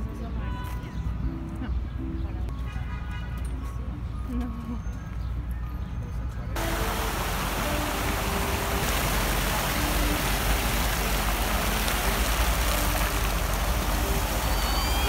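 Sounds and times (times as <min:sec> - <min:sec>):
fountain jets splashing: 0:06.6 - 0:15.0.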